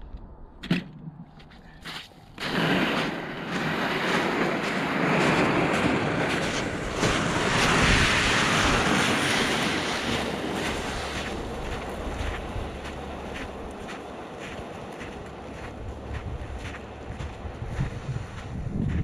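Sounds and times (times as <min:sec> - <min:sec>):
plastic sled scraping over ice: 0:02.4 - 0:12.2.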